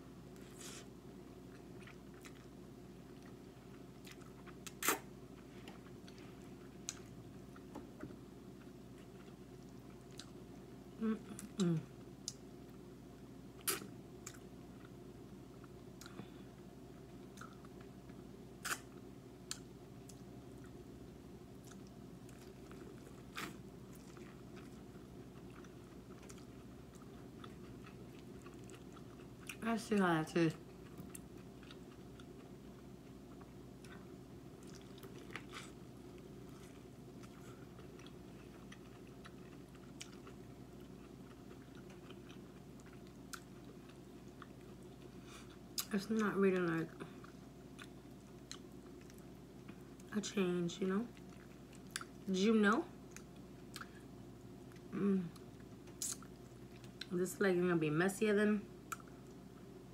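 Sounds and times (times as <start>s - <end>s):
steady low hum: 0.0s - 59.9s
crunchy bite: 18.6s - 18.9s
chewing corn on the cob: 21.5s - 29.6s, 30.6s - 46.3s, 47.0s - 50.1s
small wet mouth clicks: 55.9s - 56.3s.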